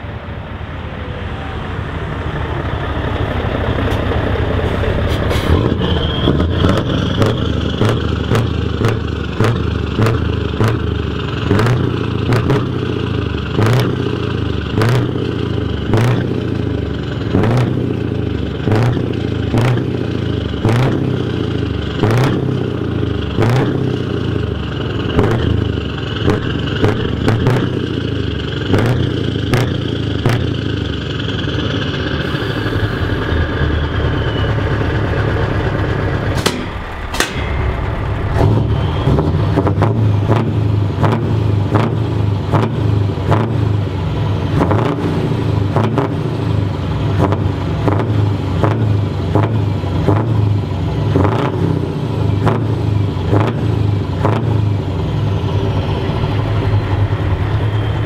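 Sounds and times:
truck engine idling: 0.0 - 58.0
faint falling whistle: 5.8 - 6.6.

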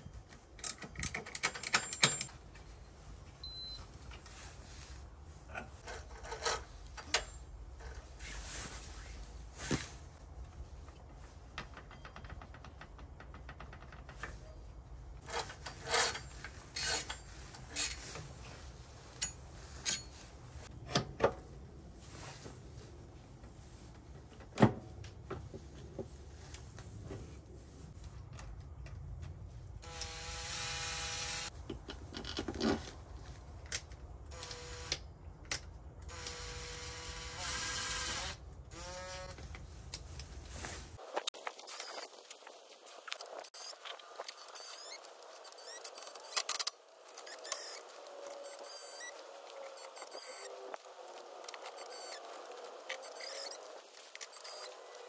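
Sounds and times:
metal parts clicking and knocking: 0.6 - 2.4.

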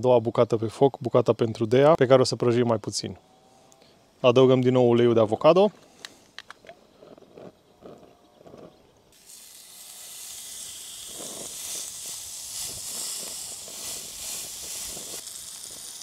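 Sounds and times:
steak sizzling in a pan: 9.2 - 16.0.

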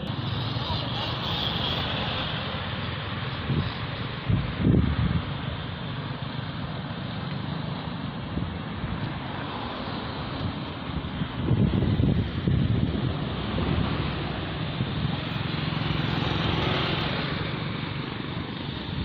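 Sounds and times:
road traffic noise: 0.0 - 19.0
wind rumbling on microphone: 3.3 - 5.6, 8.3 - 17.8.

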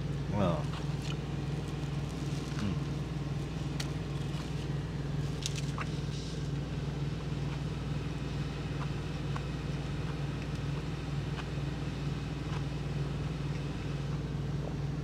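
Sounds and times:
diesel truck engine idling: 0.0 - 15.0
chewing clicks: 8.8 - 11.6.

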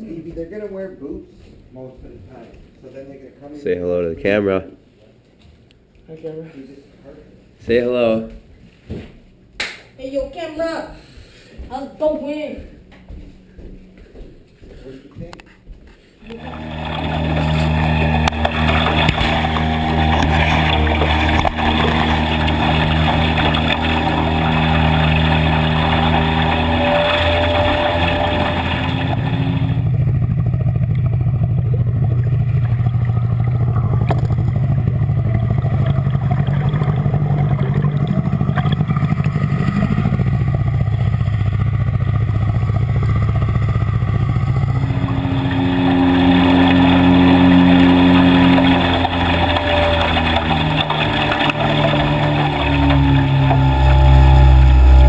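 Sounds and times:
engine droning hum: 16.2 - 55.0.

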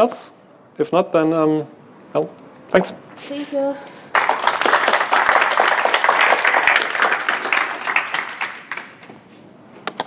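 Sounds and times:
audience applauding: 4.1 - 9.1.

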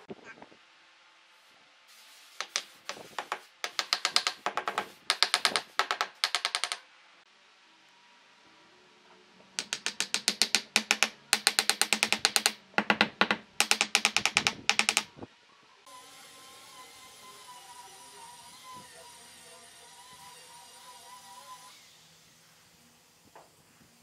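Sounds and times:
rapid mechanical clicking: 9.6 - 15.1.

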